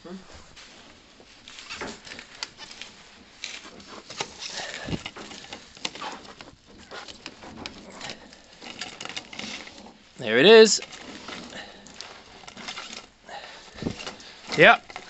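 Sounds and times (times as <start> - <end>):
plastic pipe scraping on brick: 0.7 - 10.2, 10.8 - 15.0.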